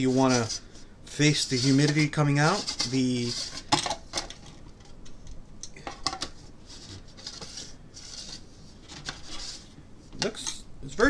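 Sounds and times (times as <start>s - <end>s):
plastic rubbing on plastic: 0.0s - 4.4s, 6.6s - 9.8s.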